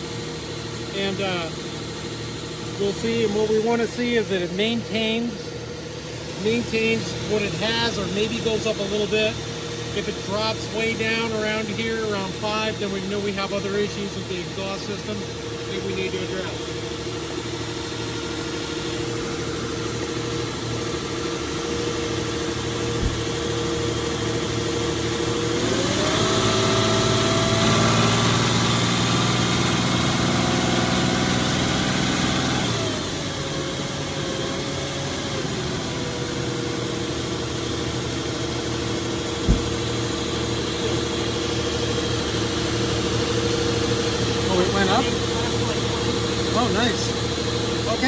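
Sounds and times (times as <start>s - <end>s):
car engine idling and revving: 0.0s - 48.0s.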